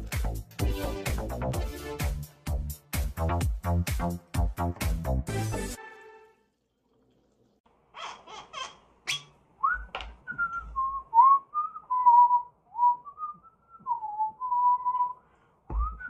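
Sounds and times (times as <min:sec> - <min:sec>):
person whistling a tune: 0:09.6 - 0:16.0.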